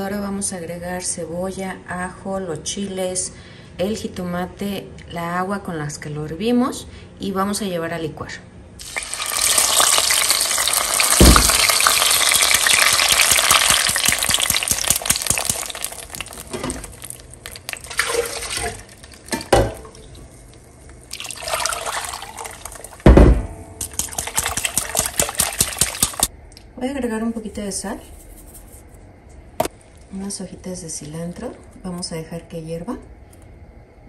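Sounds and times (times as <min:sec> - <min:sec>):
sauce pouring and splashing: 0:08.8 - 0:20.3, 0:21.0 - 0:23.1, 0:23.8 - 0:26.3.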